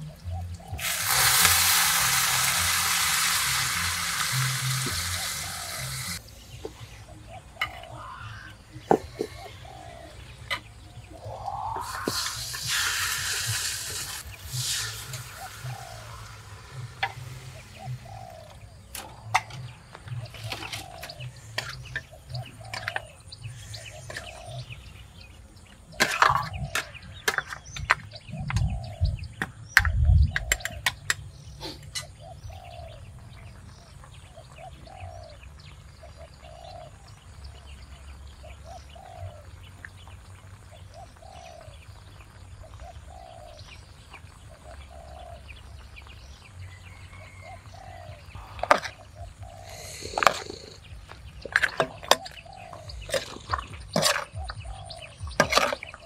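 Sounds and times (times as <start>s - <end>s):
bird calling falling note: 11.2s - 12.9s.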